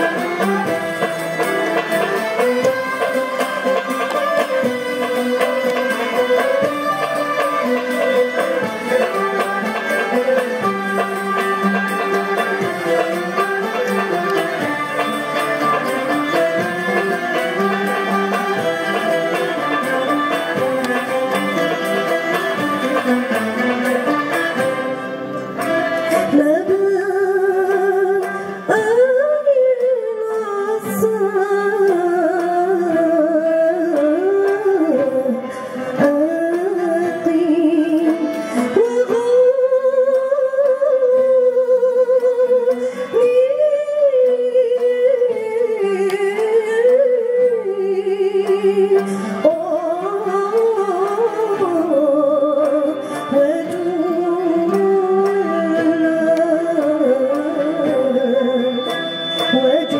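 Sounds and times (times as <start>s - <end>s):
bowed violins: 0.0s - 59.9s
plucked ouds and mandolins: 0.0s - 59.9s
woman singing with vibrato: 26.2s - 59.9s.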